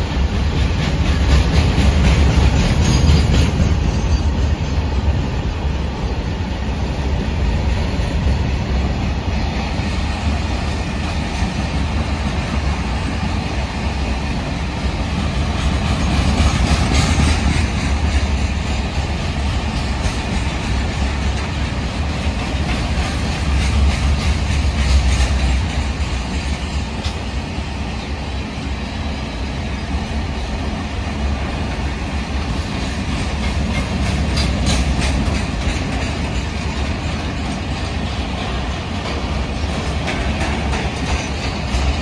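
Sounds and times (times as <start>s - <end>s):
wheels clattering over rail joints: 0.0s - 5.3s, 15.0s - 27.4s, 32.4s - 42.0s
freight train rumbling past: 0.0s - 42.0s.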